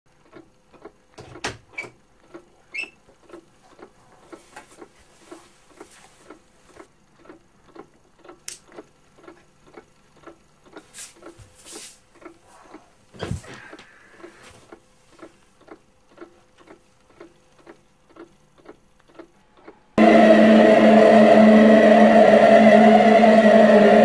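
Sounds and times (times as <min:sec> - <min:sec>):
regular ticking: 0:00.1 - 0:11.4, 0:12.0 - 0:13.1, 0:13.7 - 0:20.0
sharp clicks: 0:06.8 - 0:11.4.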